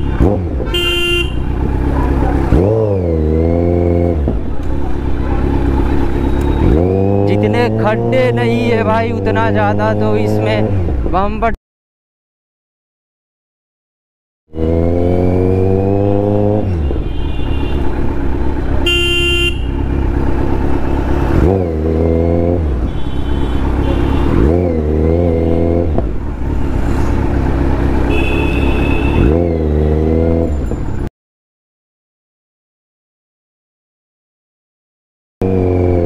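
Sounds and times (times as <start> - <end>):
vehicle horn honk: 0.0 - 1.5, 16.7 - 17.9, 18.8 - 19.8, 22.9 - 24.4, 28.1 - 29.4
motorcycle engine revving: 0.0 - 11.1, 14.5 - 31.1, 35.4 - 36.0.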